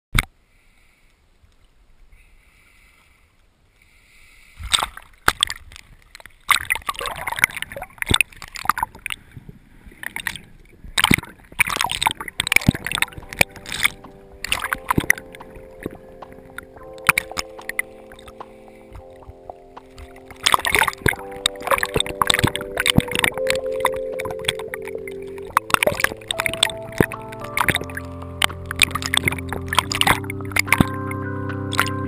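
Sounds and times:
water splashing and sloshing: 0:04.5 - 0:32.0.

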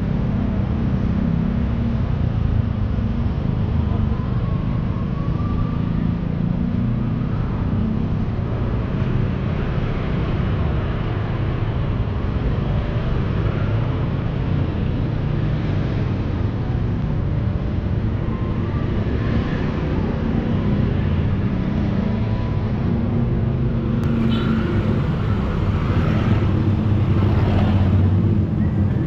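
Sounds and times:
cars and scooters passing: 0:05.9 - 0:29.0
faint rising engine note: 0:24.0 - 0:29.0.

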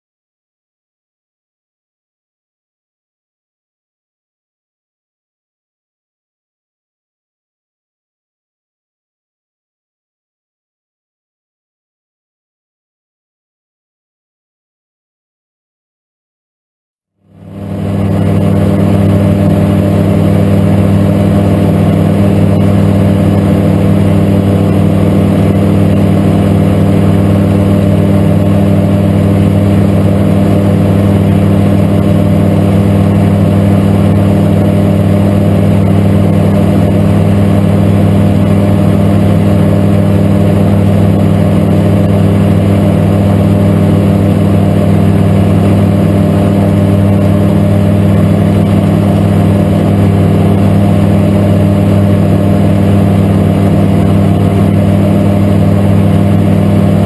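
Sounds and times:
light aircraft engine droning: 0:17.2 - 0:57.0.

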